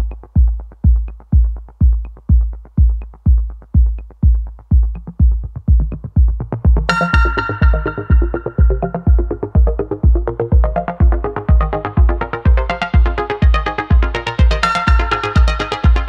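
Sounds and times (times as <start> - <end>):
electronic dance music: 0.0 - 16.0
hi-hat ticks: 0.0 - 16.0
kick drum: 0.0 - 16.0
bright synth melody: 6.9 - 16.0.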